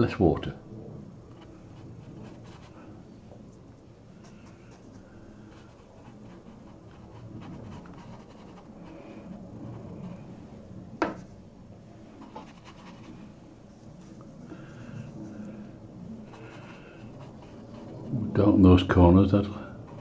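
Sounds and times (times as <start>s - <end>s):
paintbrush scratchy rubbing on paper: 1.5s - 2.9s, 4.2s - 10.3s, 12.2s - 18.6s.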